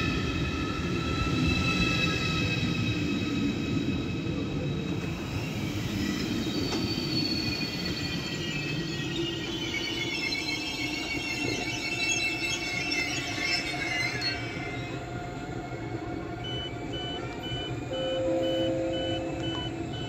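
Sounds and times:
low train rumble: 0.0s - 9.9s, 13.2s - 20.0s
train wheels squealing: 0.0s - 20.0s
high repeating beep: 17.0s - 20.0s.

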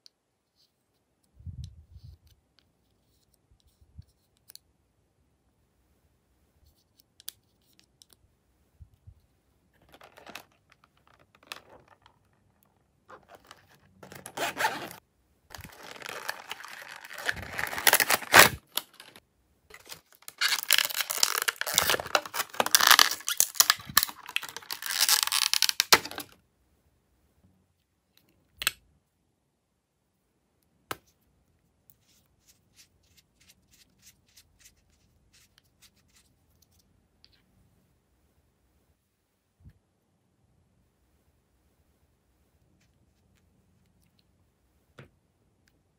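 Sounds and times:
plastic packaging crackling and tearing: 9.8s - 12.4s, 13.1s - 26.4s.

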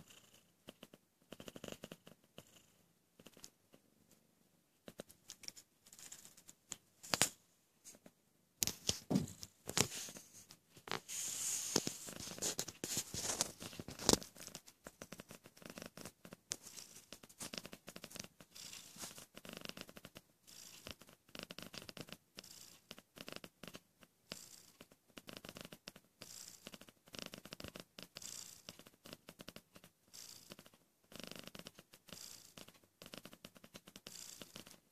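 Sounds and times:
cat purring: 0.0s - 34.9s
rustling: 5.0s - 15.4s, 16.5s - 19.4s.

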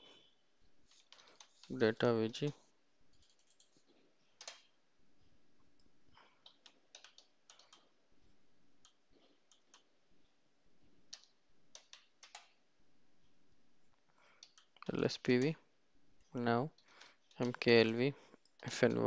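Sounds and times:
computer keyboard clicks: 4.4s - 4.7s, 6.4s - 7.9s, 11.1s - 12.6s, 14.4s - 14.8s.

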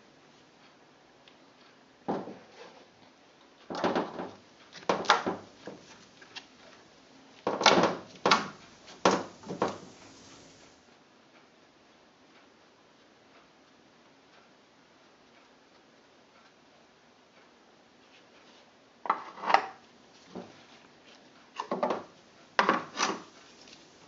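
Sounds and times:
brush swishing on wet tissue: 8.5s - 10.8s.

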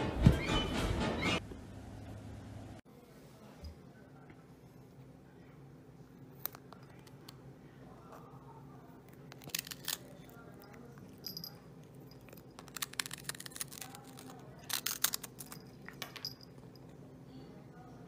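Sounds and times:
cat crunching a cracker: 9.0s - 11.2s, 11.8s - 16.0s.

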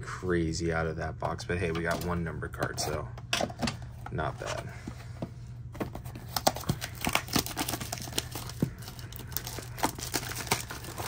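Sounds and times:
plastic wrap crinkling and tearing: 6.2s - 11.0s.

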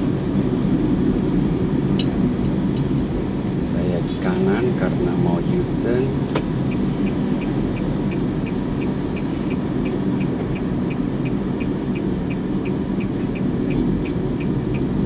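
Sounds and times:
road and engine noise: 0.0s - 15.0s
turn signal ticking: 6.1s - 15.0s.

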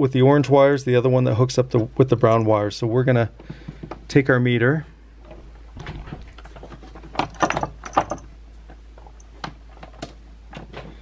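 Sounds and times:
multimeter leads clicking and knocking: 3.4s - 4.2s, 5.2s - 11.0s.

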